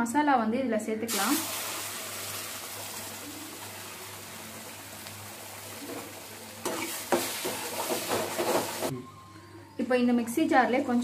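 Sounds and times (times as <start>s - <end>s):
paste sizzling in hot butter: 1.4s - 8.9s.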